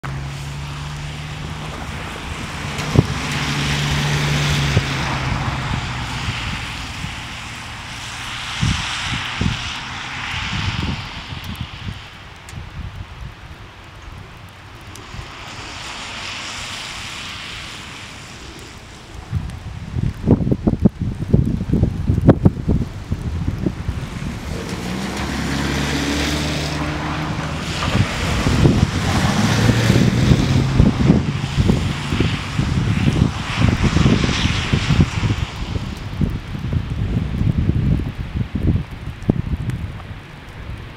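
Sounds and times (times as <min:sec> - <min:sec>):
wind noise: 0:00.0 - 0:40.9
wind thumps on microphone: 0:01.6 - 0:07.4, 0:08.4 - 0:13.2, 0:19.2 - 0:40.9.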